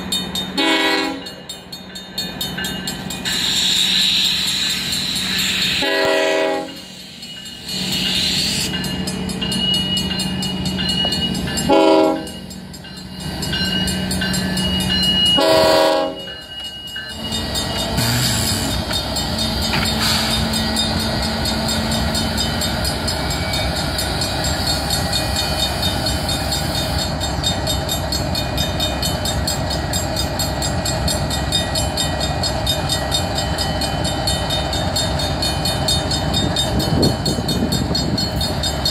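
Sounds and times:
crossing bell ringing: 0.0s - 38.9s
locomotive engine running: 0.0s - 38.9s
train wheels on rails: 0.0s - 38.9s
train air horn blasts: 0.6s - 1.3s, 5.7s - 6.9s, 11.7s - 12.4s, 15.4s - 16.3s.

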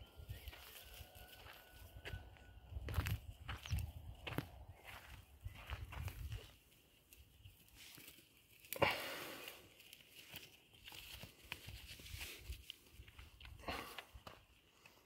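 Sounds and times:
soft rustling and scuffing: 9.9s - 13.6s.

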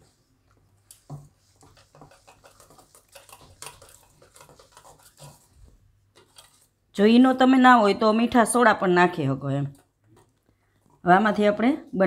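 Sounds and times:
whisk clinking against bowl: 1.1s - 5.5s.

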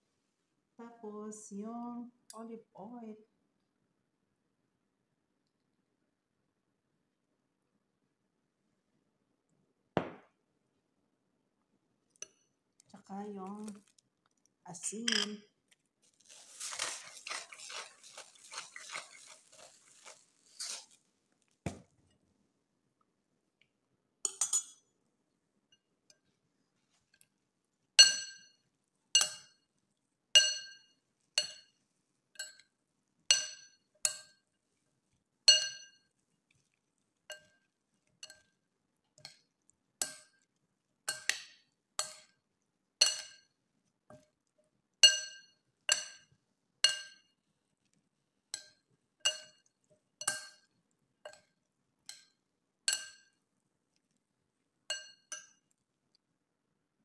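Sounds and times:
cutlery clinking on ceramic bowl: 15.0s - 15.4s, 16.7s - 20.8s, 24.2s - 24.9s, 28.0s - 29.7s, 30.4s - 31.8s, 32.4s - 32.7s, 33.3s - 34.5s, 35.5s - 36.2s, 37.3s - 38.6s, 39.2s - 40.5s, 41.1s - 42.4s, 43.0s - 44.2s, 45.0s - 47.4s, 48.6s - 53.4s, 54.9s - 55.8s.

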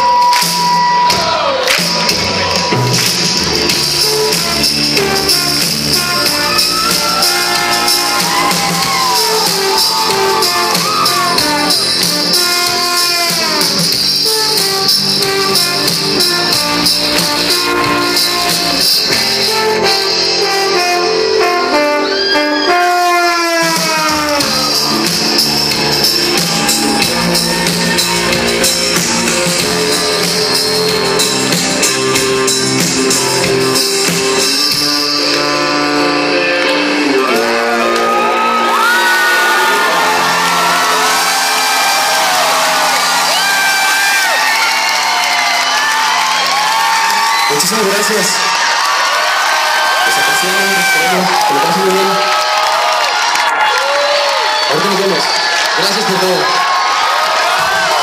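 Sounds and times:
live rock band playing: 0.0s - 53.7s
electric guitar lead with bent notes: 24.5s - 43.9s.

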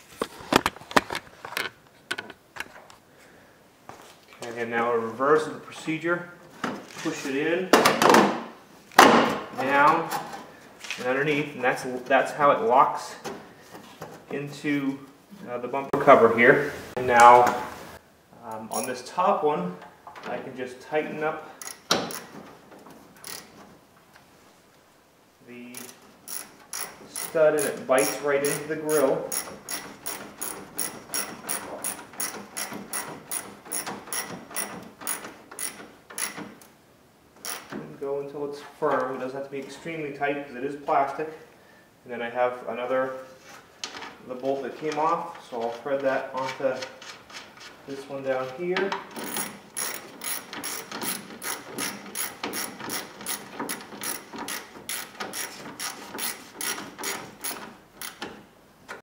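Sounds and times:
ratchet clicking: 21.6s - 22.3s, 23.2s - 23.5s, 25.7s - 36.6s, 37.4s - 37.7s, 49.2s - 58.3s.

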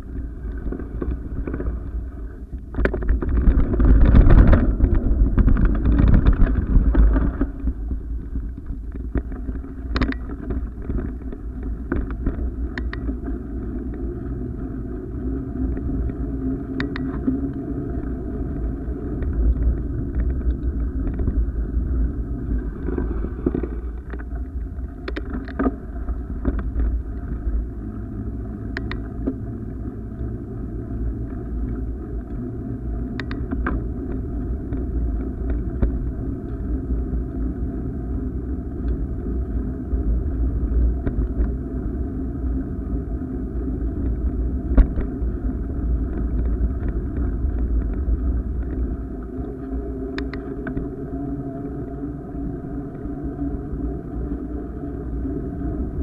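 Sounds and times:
camera motion noise: 0.0s - 14.1s, 15.6s - 27.6s
wind rumble: 0.0s - 56.0s.

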